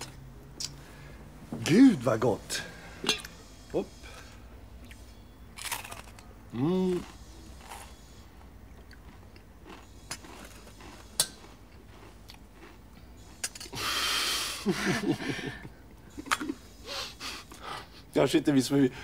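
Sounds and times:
quiet chewing: 4.1 - 13.8
person making short voiced sounds: 6.5 - 7.1.

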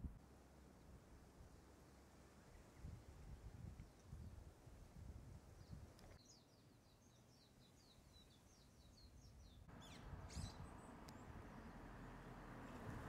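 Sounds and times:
faint outdoor ambience: 0.0 - 13.0
songbird chirping: 5.5 - 13.0
sharp sweeping bird calls: 6.2 - 12.8.

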